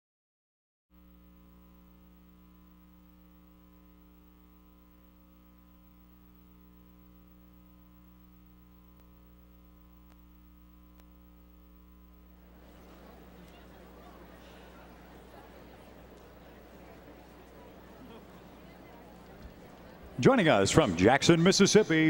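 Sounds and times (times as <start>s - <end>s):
buzzy electrical mains hum: 1.0s - 22.0s
faint ticks: 8.9s - 9.4s, 10.0s - 11.2s.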